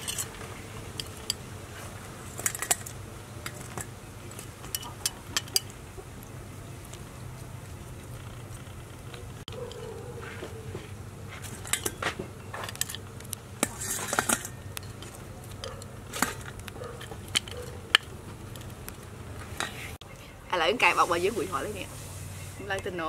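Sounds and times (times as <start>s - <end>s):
metal tongs clinking on plate: 0.0s - 0.3s.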